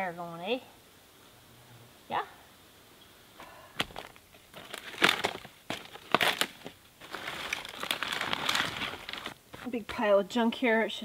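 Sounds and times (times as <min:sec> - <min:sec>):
sticks crunching and snapping: 0:03.8 - 0:09.7
bark crinkling rustle: 0:03.8 - 0:09.8.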